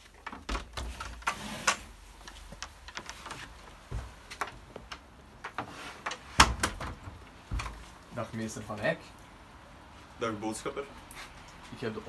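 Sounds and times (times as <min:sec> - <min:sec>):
door opening clicks and knocks: 0:00.2 - 0:01.3, 0:04.4 - 0:07.8.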